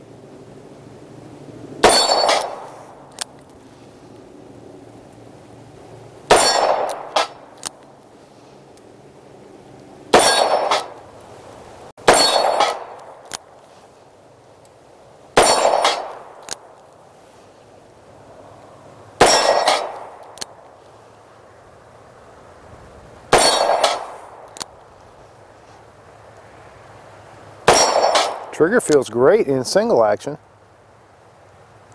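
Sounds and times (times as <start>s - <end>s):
revolver gunshots: 1.8s - 2.9s, 6.3s - 7.5s, 10.1s - 11.0s, 12.0s - 13.2s, 15.4s - 16.4s, 19.2s - 20.2s, 23.3s - 24.5s, 27.6s - 28.6s.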